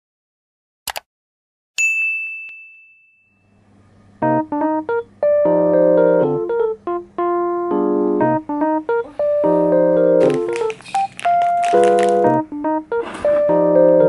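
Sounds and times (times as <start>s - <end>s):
keyboard music with repeated chords: 4.2s - 14.0s.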